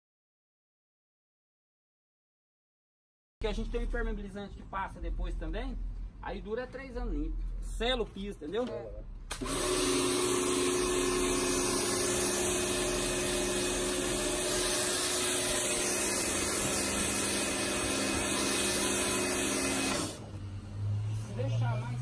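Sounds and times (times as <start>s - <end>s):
pressure washer motor hum: 9.3s - 21.2s
water jet hissing on stone tiles: 10.8s - 20.2s.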